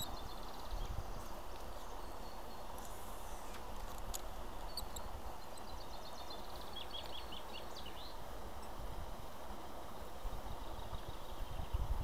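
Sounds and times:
small birds chirping: 0.0 - 8.8
outdoor hiss: 0.0 - 12.0.

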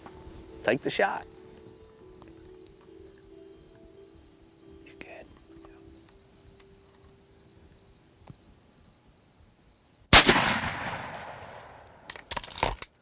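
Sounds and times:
rifle shot echoing: 10.1 - 12.1.

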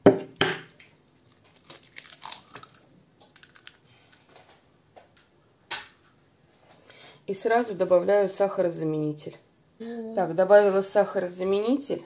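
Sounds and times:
eggshell crackling: 0.8 - 4.5.

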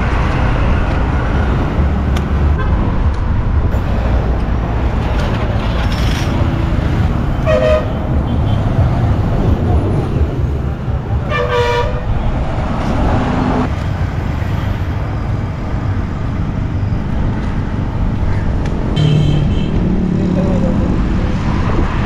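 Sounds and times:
road traffic passing: 0.0 - 22.0
vehicle horn tooting: 7.4 - 8.7, 11.3 - 12.1, 19.0 - 19.8.

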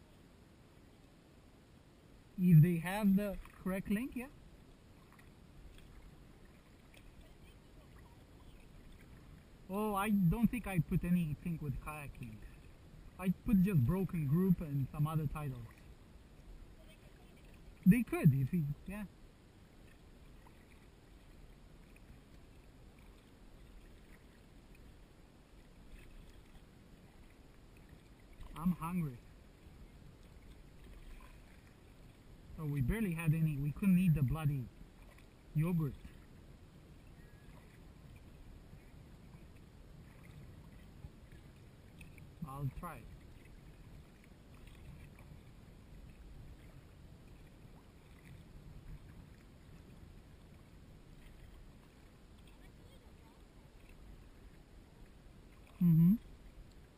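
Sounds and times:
water lapping: 2.4 - 56.9
paddle dipping in water: 2.6 - 18.8, 19.5 - 56.9
steady low rumble: 7.1 - 19.4.

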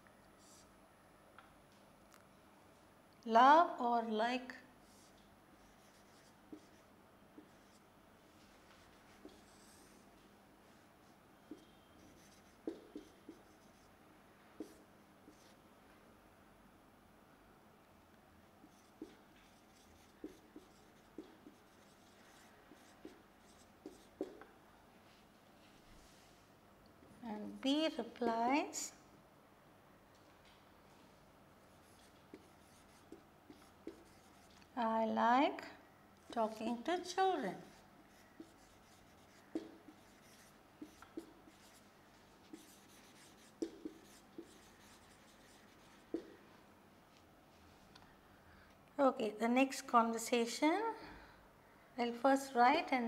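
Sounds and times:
marker pen writing on whiteboard: 4.8 - 13.9, 14.6 - 15.6, 18.6 - 24.5, 31.7 - 34.7, 36.2 - 46.4.

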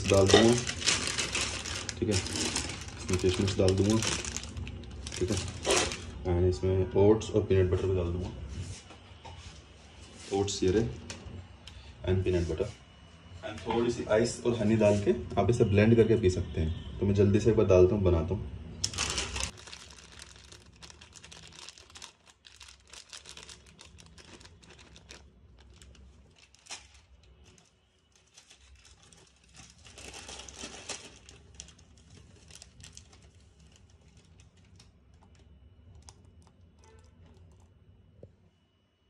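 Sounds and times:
plastic pouches crinkling: 0.0 - 6.3, 18.8 - 37.6.

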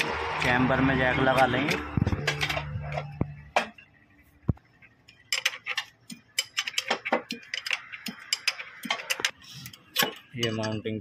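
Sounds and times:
steel brackets knocking together: 0.0 - 3.9, 5.1 - 10.9.

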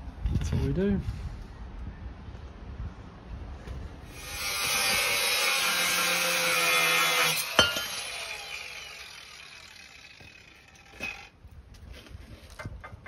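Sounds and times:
angle grinder cutting metal: 4.1 - 11.3
grinder disc whine spinning down: 7.4 - 11.3.

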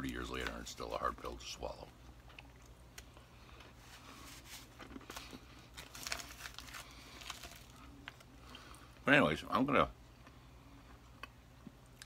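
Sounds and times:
low room hum: 0.0 - 12.0
person eating a cookie: 1.9 - 9.0
wrapper crinkling: 3.8 - 8.2.

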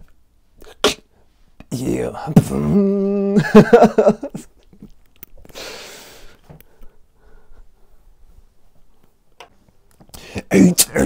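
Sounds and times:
beatboxing mouth sounds: 0.6 - 1.7
person laughing: 2.7 - 5.0
breathy exhale: 5.5 - 7.6.

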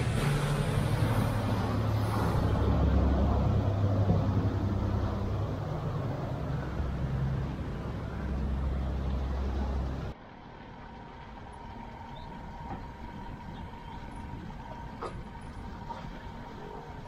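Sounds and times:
boat engine humming: 0.0 - 17.0
churning boat wake: 0.0 - 17.0.

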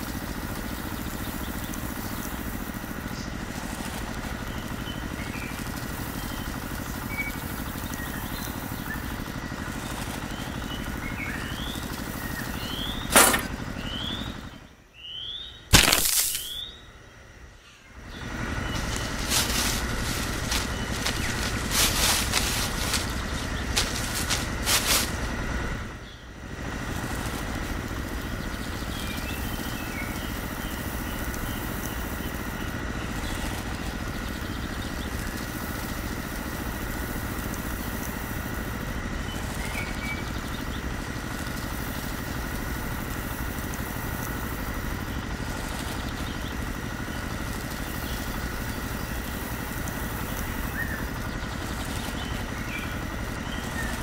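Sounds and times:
small motor running with whine: 0.0 - 54.0.

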